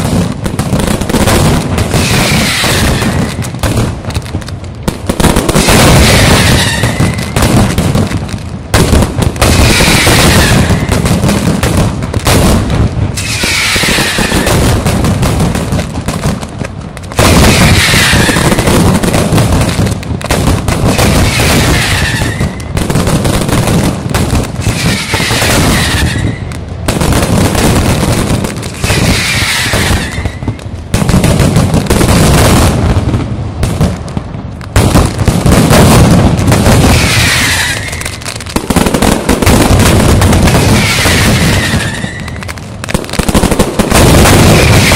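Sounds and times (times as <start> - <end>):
firecrackers barrage of bangs: 0.0 - 44.9.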